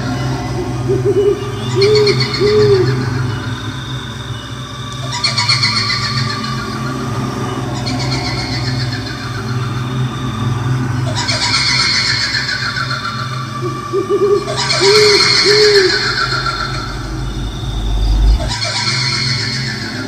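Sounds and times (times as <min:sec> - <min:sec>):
owl hoots: 0:00.0 - 0:03.2, 0:11.0 - 0:20.0
low steady drone: 0:00.0 - 0:20.0.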